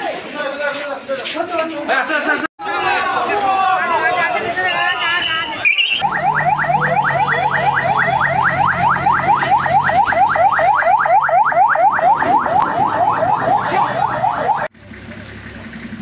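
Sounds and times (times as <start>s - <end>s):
electronic siren yelping: 5.5s - 14.7s.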